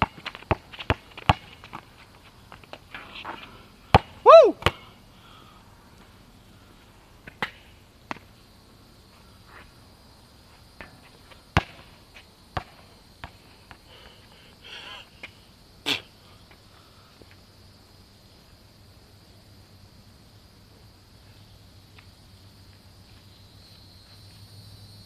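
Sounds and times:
basketball bouncing on asphalt: 0.0 - 4.9, 10.8 - 13.9.

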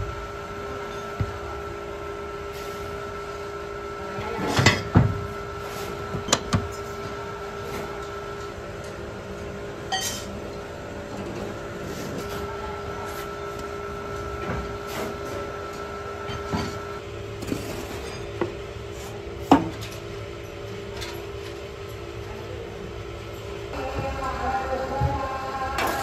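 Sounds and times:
steady machine hum: 0.0 - 26.0.

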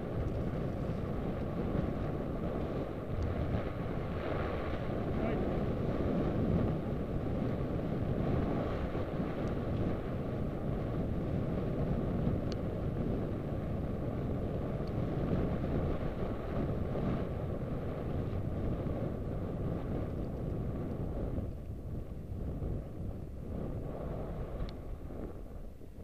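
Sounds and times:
wind buffeting microphone: 0.0 - 26.0
faint clicks: 24.6 - 24.8.

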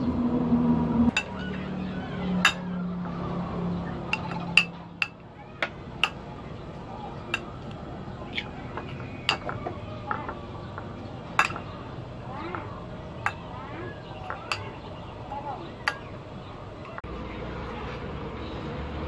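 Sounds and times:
metal spoon clinking ceramic bowl: 11.4 - 11.7, 14.3 - 14.8.

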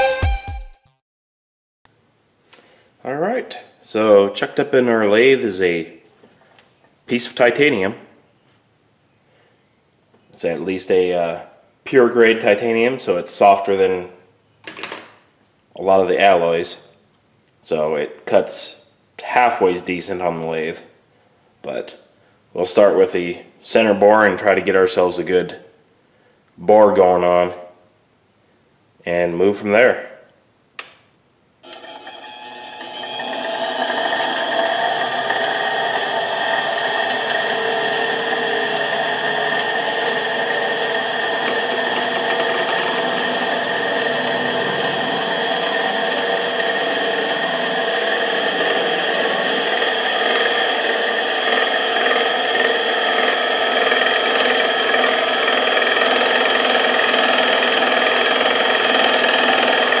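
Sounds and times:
drill bit boring metal: 31.6 - 60.0
lathe motor whining: 31.6 - 60.0.

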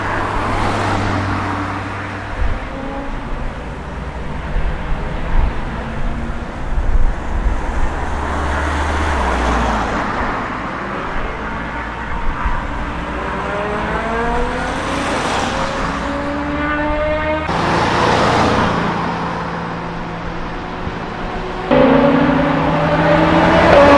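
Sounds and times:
deep car engine passing: 0.0 - 11.8, 12.4 - 23.9
car engines accelerating: 0.0 - 23.9.

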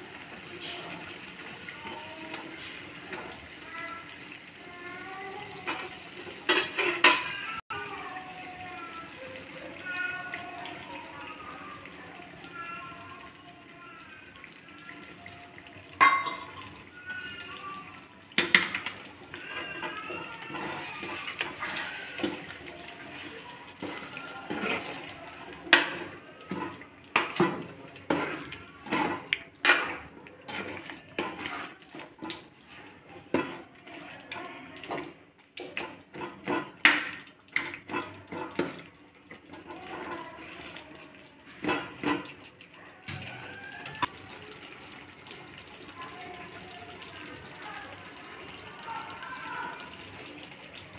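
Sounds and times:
gravy sizzling and bubbling: 0.0 - 50.9
ladle scraping a metal pan: 18.8 - 33.6.

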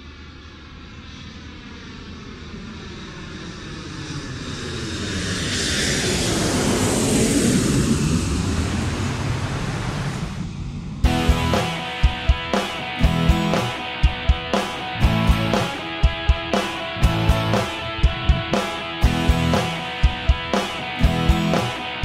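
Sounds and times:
jet aircraft passing: 0.0 - 22.0
music with drums: 11.0 - 22.0.

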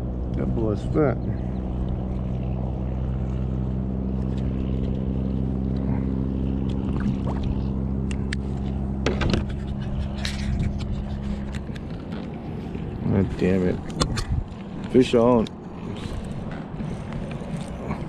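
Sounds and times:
motorboat engine droning: 0.0 - 18.0
knocks and rattles in kayak: 8.6 - 15.2.

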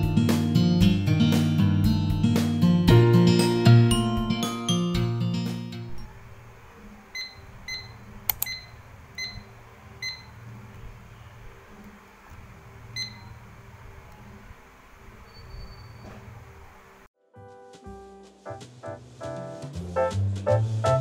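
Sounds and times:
sharp button clicks: 8.3 - 8.7.

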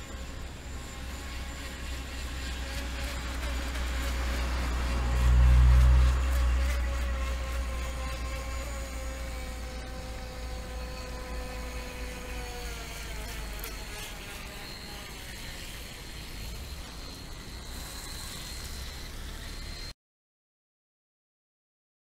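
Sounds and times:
model boat motors whining: 0.0 - 19.9.

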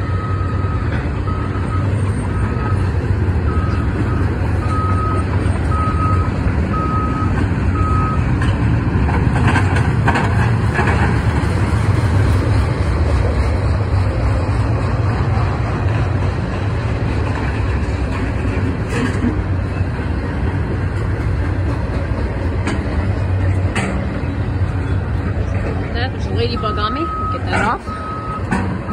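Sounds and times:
backup alarm beeps: 0.0 - 2.9, 3.5 - 8.3, 26.1 - 28.9
excavator diesel engine running: 0.0 - 28.9
freight train rumbling past: 0.0 - 28.9.

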